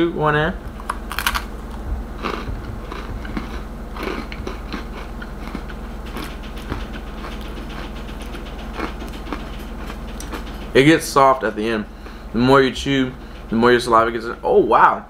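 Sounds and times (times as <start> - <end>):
crunchy chewing: 0.7 - 10.8.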